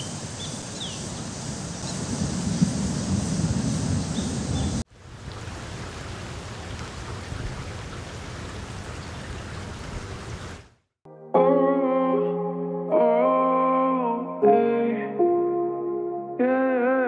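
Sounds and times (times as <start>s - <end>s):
steady rain falling: 1.1s - 10.8s
guitar music: 11.1s - 16.6s.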